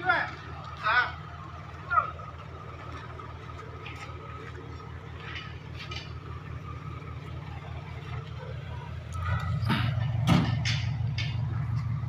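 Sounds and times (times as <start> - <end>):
lorry engine idling: 0.0 - 12.0.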